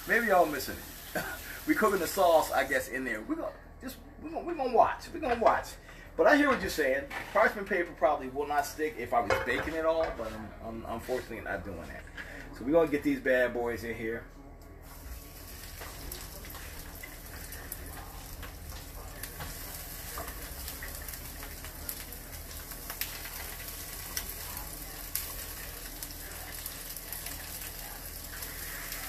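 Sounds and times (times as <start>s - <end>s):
fish sizzling in oil: 0.0s - 2.8s, 14.8s - 29.0s.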